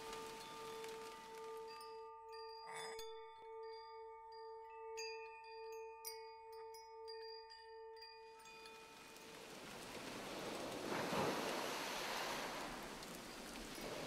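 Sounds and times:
soft rain-like hiss: 0:00.0 - 0:02.6, 0:08.4 - 0:14.0
wind chimes ringing: 0:00.0 - 0:11.3, 0:12.6 - 0:14.0.

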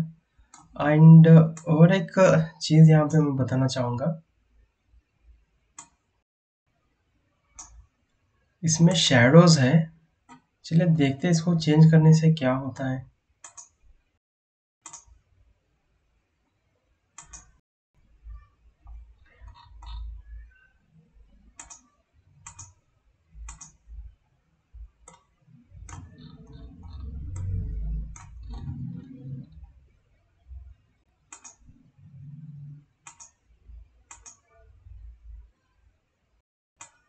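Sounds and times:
computer mouse clicking: 0:05.8 - 0:06.0, 0:07.6 - 0:07.8, 0:13.4 - 0:13.8, 0:14.8 - 0:15.1, 0:17.2 - 0:17.6, 0:18.9 - 0:20.7, 0:21.6 - 0:22.8, 0:23.4 - 0:23.9, 0:25.0 - 0:29.6, 0:31.3 - 0:31.8, 0:32.4 - 0:33.4, 0:34.1 - 0:34.6, 0:36.8 - 0:37.0
low rumble: 0:25.7 - 0:29.8.

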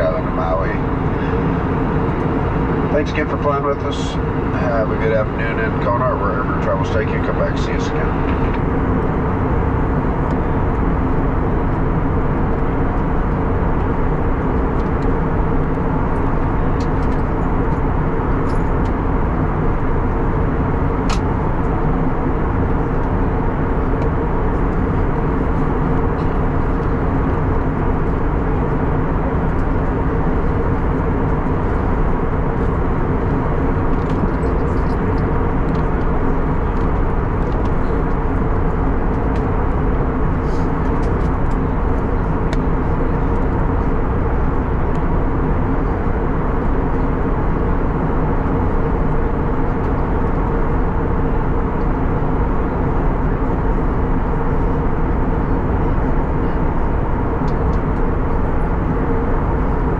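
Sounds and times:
airplane cabin engine drone: 0:00.0 - 0:59.9.

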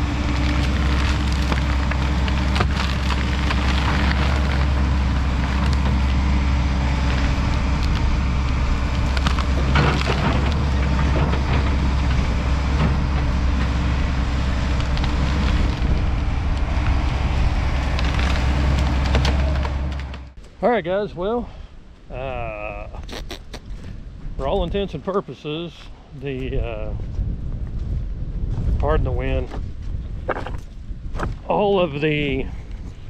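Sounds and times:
branches cracking and snapping: 0:00.0 - 0:20.4, 0:29.8 - 0:31.4
excavator diesel engine running: 0:00.0 - 0:20.4.

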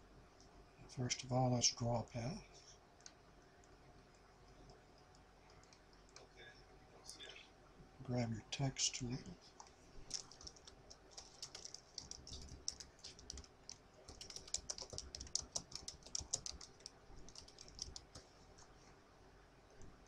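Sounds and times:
typing on computer keyboard: 0:10.0 - 0:18.3.

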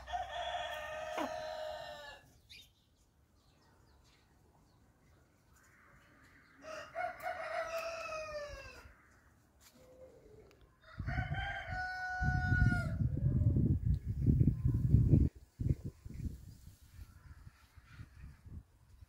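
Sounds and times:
rooster crowing: 0:00.0 - 0:02.2, 0:06.6 - 0:09.0, 0:10.8 - 0:13.0.

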